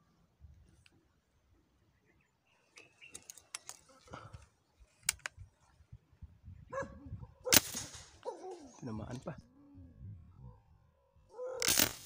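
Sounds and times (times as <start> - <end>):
airgun sharp clicks: 11.6 - 12.0.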